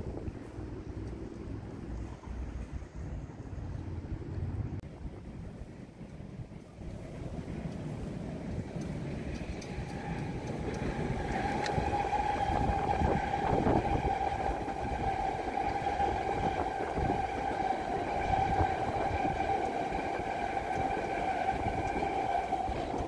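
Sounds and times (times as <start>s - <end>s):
train wheels rumbling on rails: 0.0s - 23.0s
train high whine: 5.4s - 23.0s.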